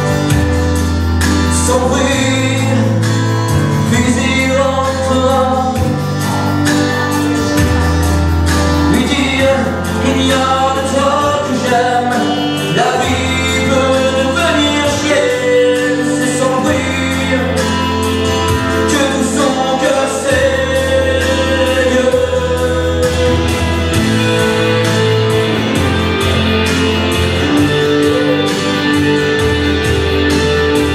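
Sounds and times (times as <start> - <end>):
held bass notes: 0.0 - 30.9
steady percussive beat: 0.0 - 30.9
man singing into a microphone: 1.3 - 7.9, 8.7 - 24.9.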